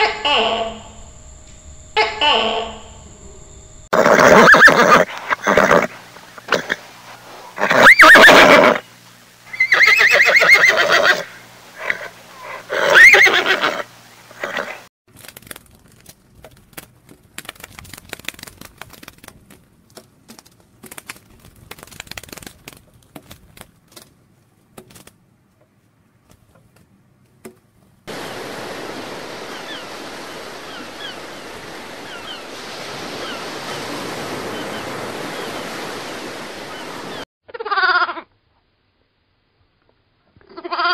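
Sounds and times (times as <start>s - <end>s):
steady rushing noise: 0.7s - 3.9s
horse whinnying: 3.9s - 6.8s, 7.6s - 8.8s, 9.5s - 14.9s.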